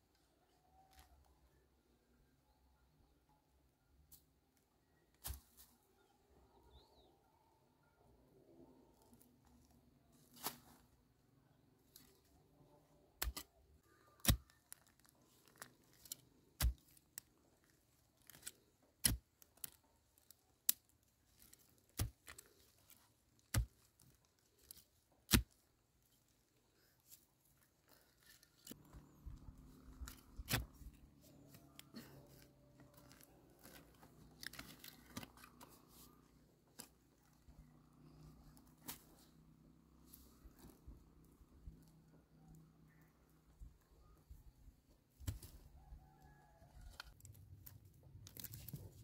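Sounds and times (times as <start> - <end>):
scraping and rustling of earth: 9.0 - 11.1, 11.8 - 43.0, 45.0 - 49.0
digging tool chopping into soil: 13.2 - 13.5, 14.2 - 14.5, 16.6 - 17.0, 23.5 - 23.7.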